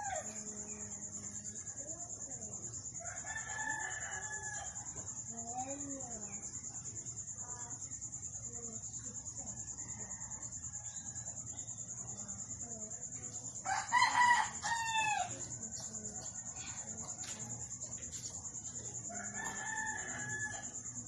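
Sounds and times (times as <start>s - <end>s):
rooster crowing: 3.0s - 4.8s, 13.6s - 15.5s, 19.0s - 20.8s.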